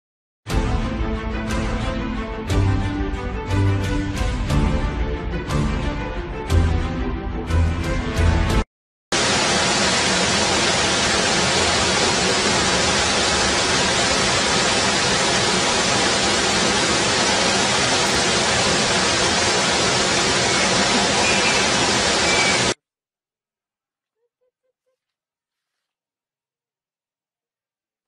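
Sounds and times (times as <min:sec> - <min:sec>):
loud static hiss: 0:09.2 - 0:22.8.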